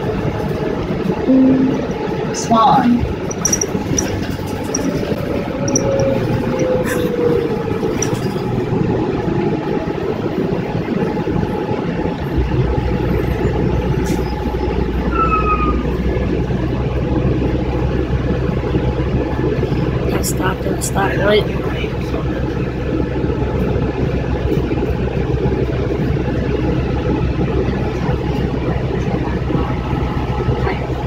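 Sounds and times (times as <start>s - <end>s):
bus engine and road noise: 0.0s - 31.0s
deep steady rumble: 0.0s - 31.0s
falling whine: 1.3s - 2.2s.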